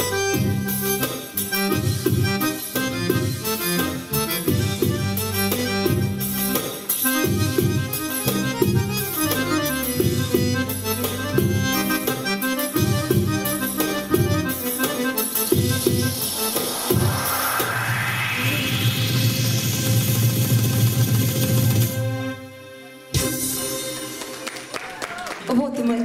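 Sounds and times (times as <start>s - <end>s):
steady drum rhythm: 0.0s - 17.4s
accordion-voiced keyboard melody: 0.0s - 24.7s.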